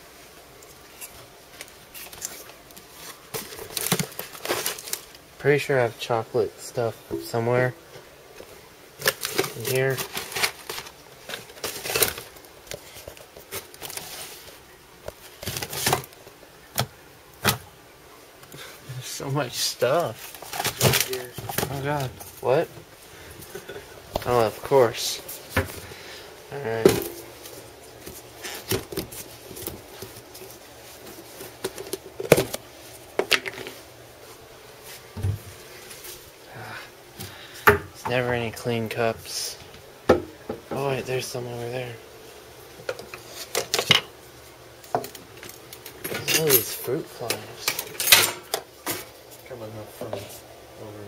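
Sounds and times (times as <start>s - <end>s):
packages rustling: 0.7s - 6.1s, 8.3s - 17.6s, 18.7s - 36.5s.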